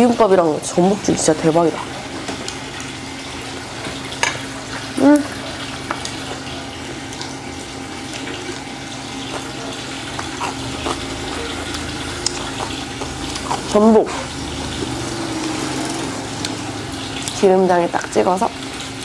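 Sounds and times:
wet chewing: 0:08.2 - 0:15.2, 0:15.8 - 0:17.4.

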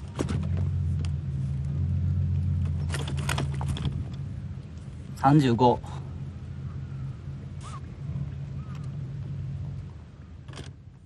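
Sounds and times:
engine humming: 0:00.0 - 0:11.0
landing net clicks and rattles: 0:02.7 - 0:04.2.

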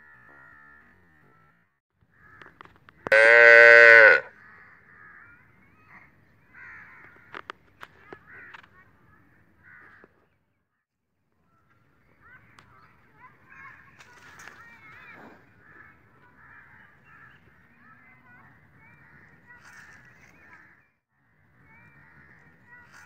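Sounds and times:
calf mooing: 0:03.1 - 0:04.3.

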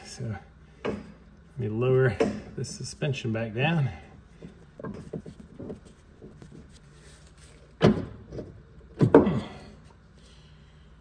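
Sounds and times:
metal clunks and knocks: 0:00.8 - 0:01.2, 0:02.1 - 0:02.6, 0:04.4 - 0:06.4, 0:07.8 - 0:09.6.

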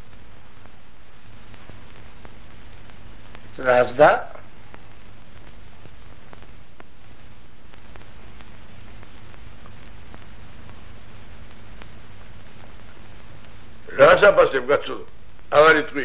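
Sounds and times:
film soundtrack hiss and hum: 0:00.0 - 0:16.0
faint scattered clicks: 0:01.4 - 0:03.6, 0:04.7 - 0:13.7.

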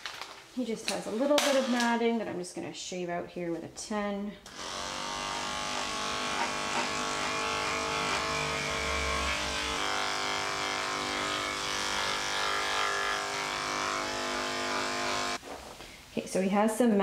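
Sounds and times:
electric clippers humming: 0:04.5 - 0:15.4.

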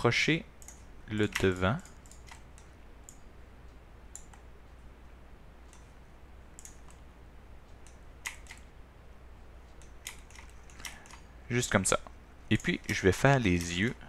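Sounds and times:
faint low hum: 0:00.0 - 0:14.0
keyboard and mouse clicks: 0:00.6 - 0:03.2, 0:04.1 - 0:04.5, 0:06.5 - 0:07.0, 0:07.7 - 0:08.7, 0:09.7 - 0:11.3.

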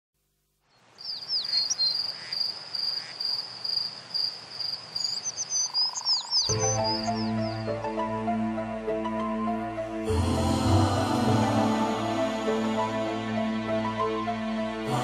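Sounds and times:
crickets chirping: 0:00.6 - 0:07.8
bird calls: 0:00.7 - 0:07.8.

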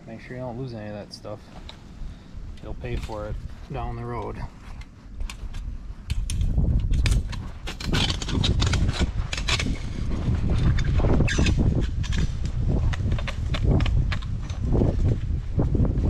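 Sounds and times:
steady low rumble: 0:00.0 - 0:16.0
pliers clicking and scraping metal: 0:05.2 - 0:09.8, 0:10.6 - 0:12.4.

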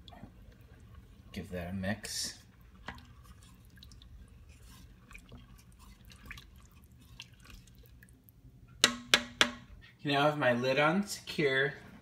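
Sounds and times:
faint steady low hum: 0:00.0 - 0:12.0
spoon stirring rice in liquid: 0:02.0 - 0:08.2.

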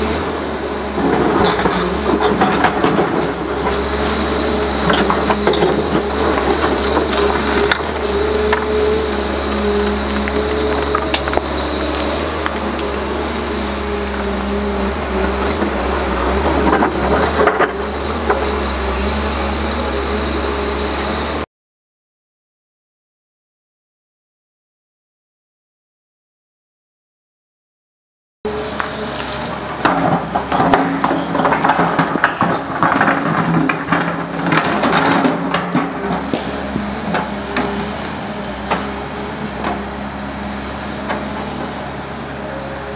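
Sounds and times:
hydraulic whine: 0:00.0 - 0:21.4
excavator diesel engine: 0:00.0 - 0:21.5, 0:28.5 - 0:42.9.

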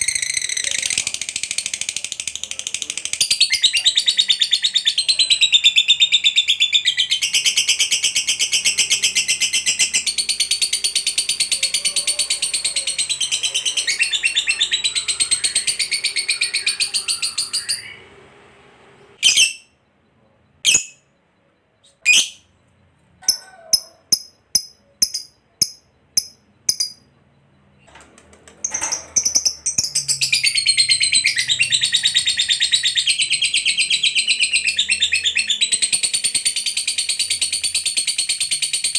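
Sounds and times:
bird chattering trill: 0:00.0 - 0:18.1, 0:19.2 - 0:19.8, 0:20.6 - 0:21.2, 0:21.8 - 0:22.5, 0:23.2 - 0:27.2
bird sharp chirps: 0:19.2 - 0:19.8, 0:20.6 - 0:21.2, 0:21.8 - 0:22.6.

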